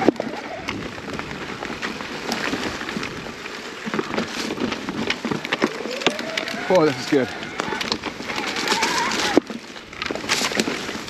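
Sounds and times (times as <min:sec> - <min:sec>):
bike rattles and knocks: 0:00.0 - 0:11.0
bike tyres rolling on dirt: 0:00.0 - 0:11.0.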